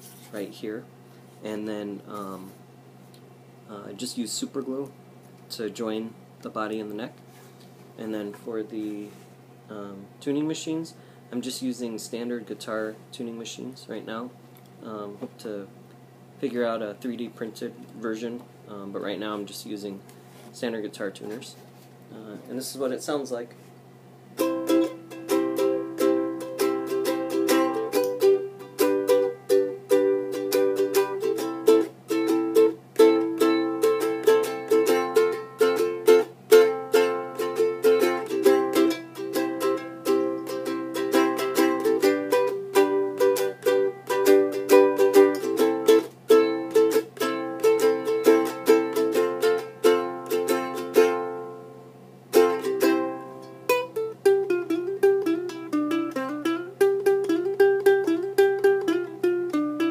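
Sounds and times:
ukulele strumming chords: 24.4 - 59.9.

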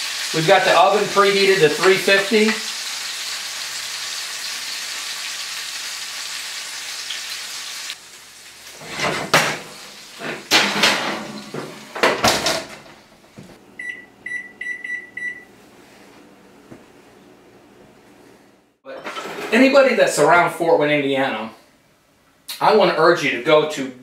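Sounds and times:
meat sizzling in oil: 0.0 - 10.2
skillet clunking on oven rack: 10.2 - 13.0
microwave keypad beeps: 13.8 - 15.5.

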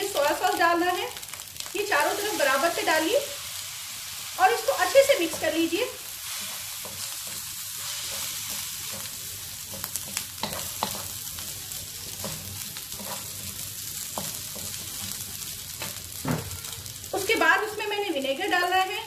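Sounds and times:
fried rice sizzling in wok: 0.0 - 19.0
spatula scraping and tapping pan: 6.4 - 11.4, 12.0 - 16.5.

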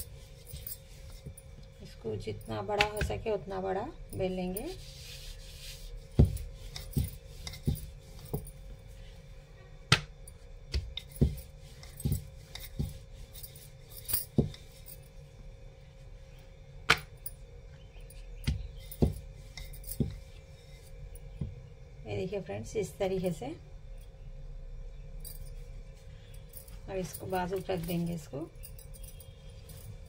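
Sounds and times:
rolling pin working dough: 4.2 - 9.2, 9.9 - 15.1, 18.1 - 21.7.

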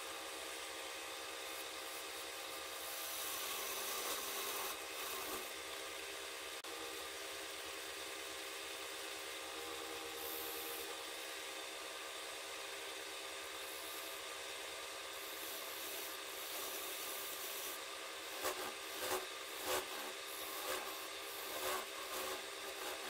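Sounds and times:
wood lathe running: 0.0 - 12.4, 13.0 - 23.0
tool rubbing spinning wood: 1.1 - 5.7, 10.0 - 11.0, 15.2 - 23.0.

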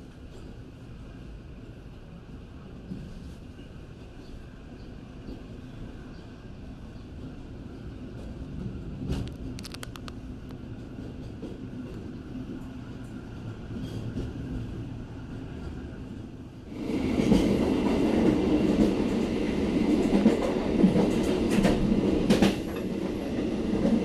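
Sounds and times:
rumble of wheels on rails: 0.0 - 24.0
clicks of wheels on rail joints: 8.1 - 13.2, 20.0 - 23.2.

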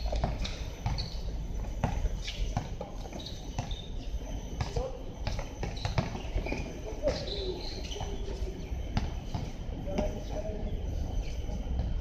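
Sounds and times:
basketball bouncing: 4.7 - 6.6.

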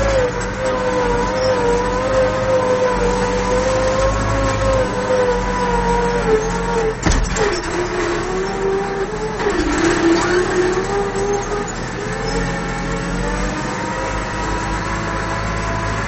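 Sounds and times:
tractor diesel engine under load: 0.0 - 16.0
clunk: 7.0 - 8.7, 9.4 - 11.3.

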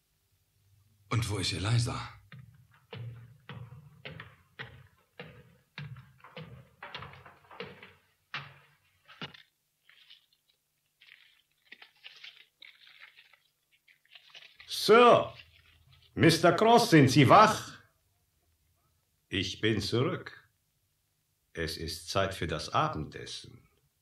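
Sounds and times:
footsteps: 1.7 - 16.9
faint rustling and tapping: 1.8 - 16.4.

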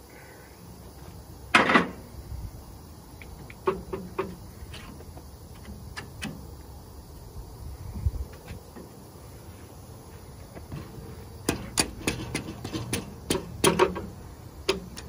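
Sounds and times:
metal clunks and clicks: 3.2 - 6.5, 10.7 - 15.0.

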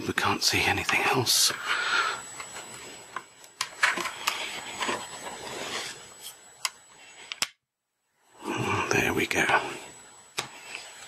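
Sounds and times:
plastic rubbing and scraping: 3.8 - 6.4.

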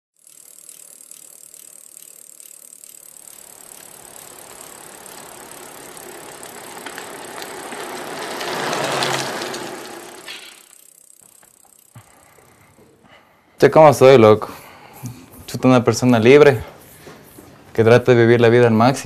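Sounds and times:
bicycle freewheel ticking: 0.1 - 13.2.

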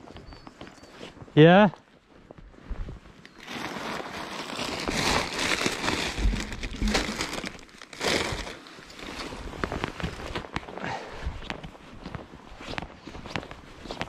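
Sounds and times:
plastic bag crinkling: 3.3 - 10.3.

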